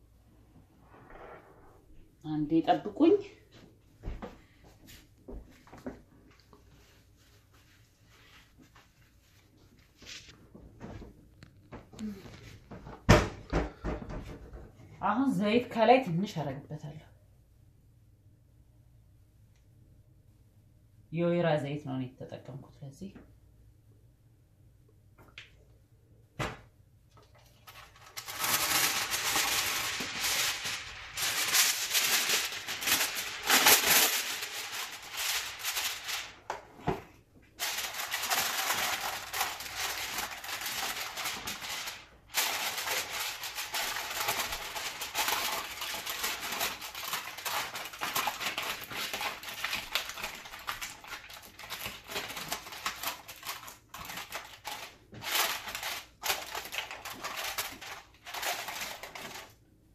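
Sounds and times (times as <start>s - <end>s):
aluminium foil crinkling: 27.2s - 36.8s, 37.5s - 59.6s.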